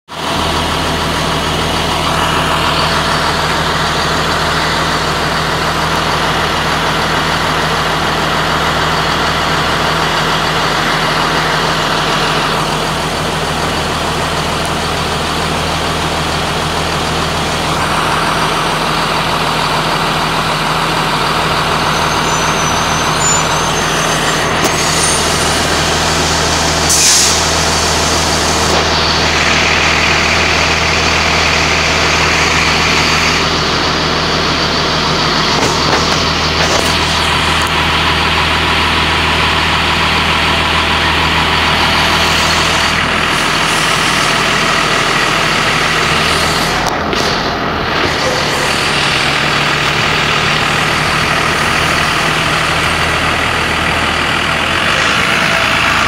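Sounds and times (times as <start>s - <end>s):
bus diesel engines running: 0.1s - 56.0s
air brakes hissing: 21.7s - 28.9s.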